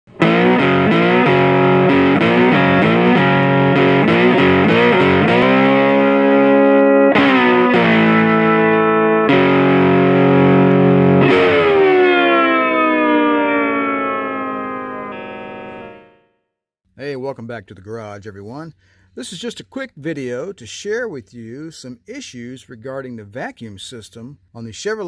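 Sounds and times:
distorted electric guitar riff: 0.1 - 16.3.

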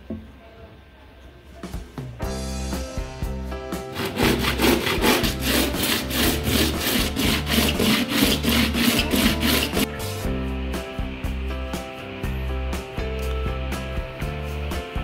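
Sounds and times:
metal rubbing on coarse sandpaper: 4.0 - 9.9.

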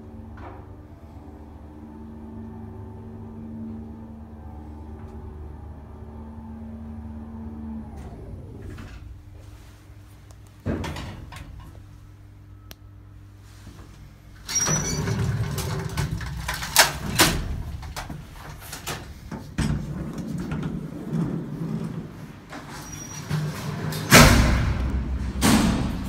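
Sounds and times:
steady low hum: 0.0 - 14.5, 23.4 - 26.0
metal elevator gate rattling open: 10.6 - 11.8, 14.4 - 26.0.

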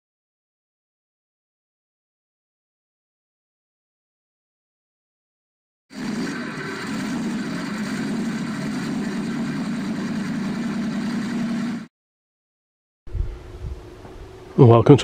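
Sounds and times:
car engine running: 5.9 - 11.9.

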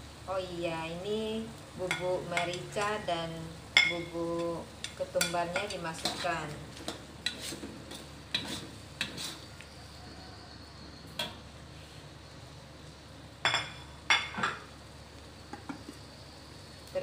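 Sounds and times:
metal spatula scraping a wok: 5.6 - 9.5.

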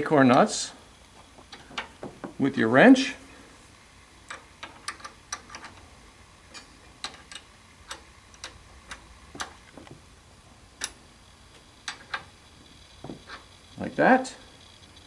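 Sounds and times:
wrench clicking on metal nut: 4.2 - 5.9, 6.5 - 9.7.

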